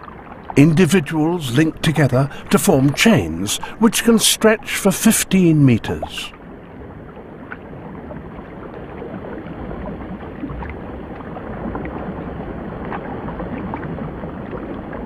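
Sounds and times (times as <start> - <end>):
rushing watery noise: 0.6 - 6.3.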